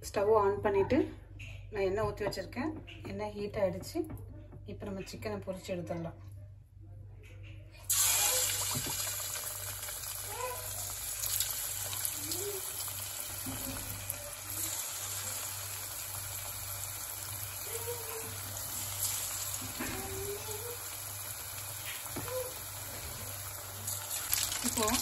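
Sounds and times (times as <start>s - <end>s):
deep-frying sizzle and bubbling: 7.9s - 25.0s
oil crackles: 7.9s - 25.0s.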